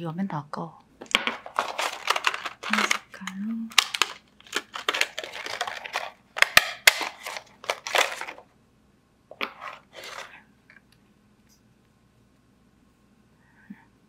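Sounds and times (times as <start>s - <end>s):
plastic packaging crinkling: 1.0s - 8.5s, 9.3s - 10.4s
sharp plastic snaps: 6.4s - 7.4s.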